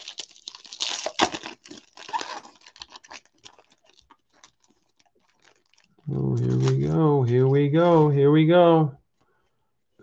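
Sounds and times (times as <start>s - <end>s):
foil wrapper tearing and crinkling: 0.0s - 7.0s.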